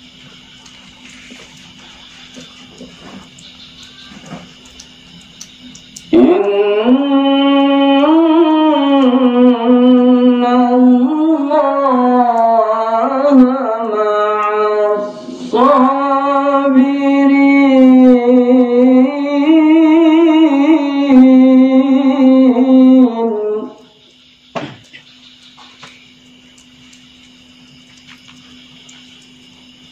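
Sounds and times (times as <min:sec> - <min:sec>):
man chanting melodically: 0:06.0 - 0:23.8.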